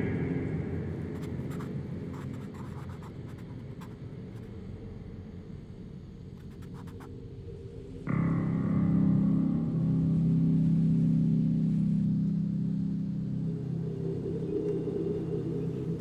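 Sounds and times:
pencil scratching on paper: 1.2s - 3.5s.

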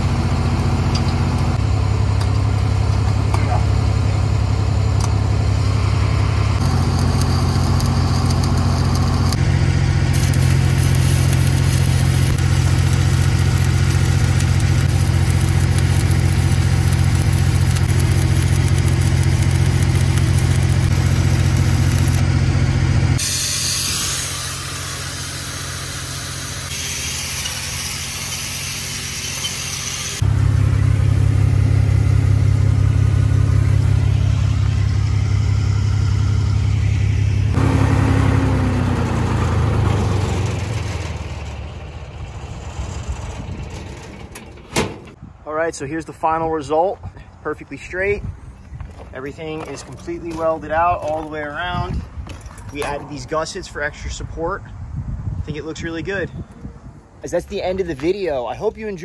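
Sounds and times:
engine running with low hum: 0.0s - 45.4s
welding arc hissing and crackling: 6.0s - 22.4s, 23.1s - 30.2s.

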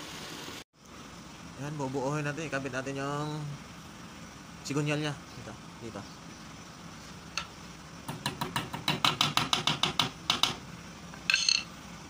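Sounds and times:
hammer tapping metal: 7.4s - 10.6s, 11.3s - 11.7s
ringing metallic clink: 11.3s - 11.7s.

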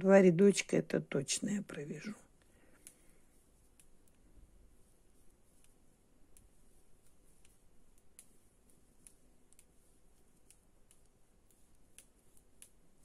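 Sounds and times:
knitting needles clicking: 1.4s - 4.3s, 5.6s - 13.0s.

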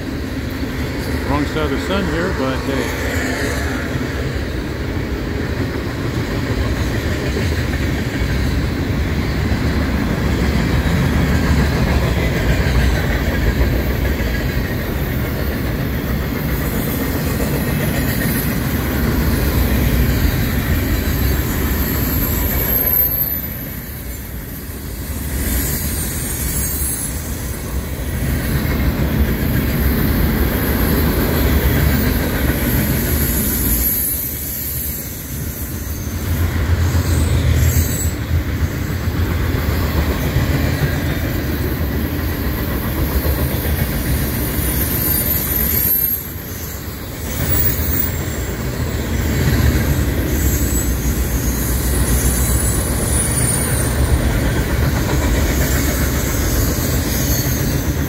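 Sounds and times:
train wheels rumbling on rails: 0.0s - 58.0s
high wheel squeal: 18.0s - 27.9s, 30.5s - 38.9s, 43.4s - 54.4s, 55.3s - 58.0s.

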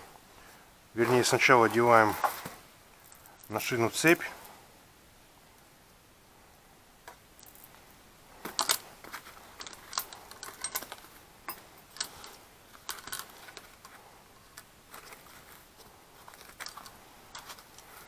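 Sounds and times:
chainsaw chain rattling: 8.5s - 8.9s, 9.5s - 13.9s, 16.3s - 17.9s.

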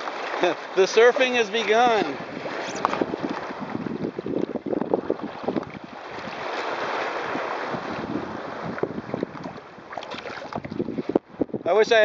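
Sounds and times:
water rushing along kayak hull: 0.0s - 12.0s
wind buffeting microphone: 0.0s - 12.0s
small slaps of water: 8.8s - 11.2s.

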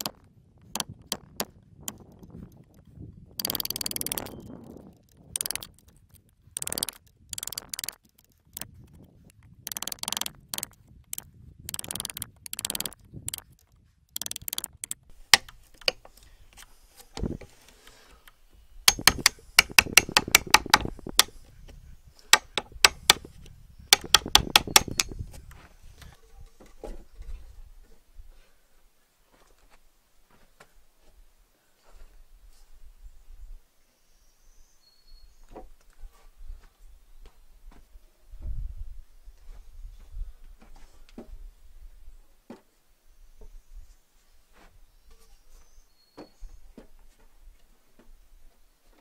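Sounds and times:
chisel struck tapping knocks: 18.9s - 21.3s, 22.3s - 23.3s, 23.9s - 25.2s
chisel scraping wood: 18.9s - 21.4s, 22.3s - 25.2s.

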